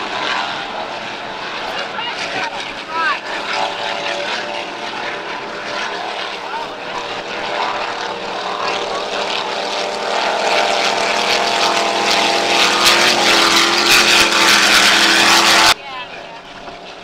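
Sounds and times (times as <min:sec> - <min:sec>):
powerboat engines droning: 0:00.0 - 0:17.0.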